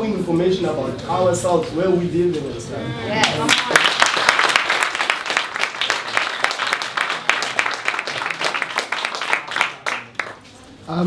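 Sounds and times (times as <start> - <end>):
crowd applauding: 3.2 - 10.6.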